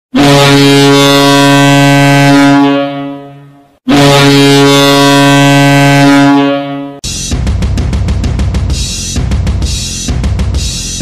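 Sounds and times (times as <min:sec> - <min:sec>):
goal horn blasts: 0:00.1 - 0:07.0.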